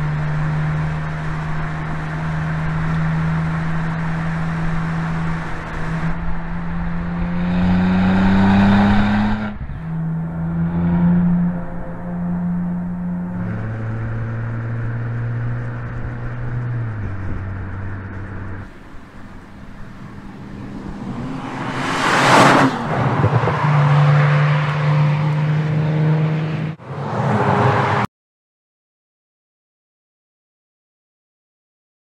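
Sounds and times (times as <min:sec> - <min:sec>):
car engine running: 0:00.0 - 0:26.8
car passing by: 0:18.6 - 0:28.1.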